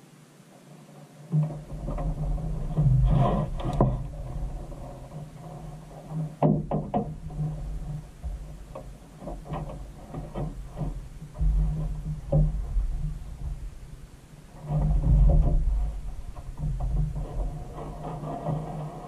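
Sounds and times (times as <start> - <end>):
fishing gear knocking in boat: 6.4 - 13.8
steady low rumble: 6.9 - 19.0.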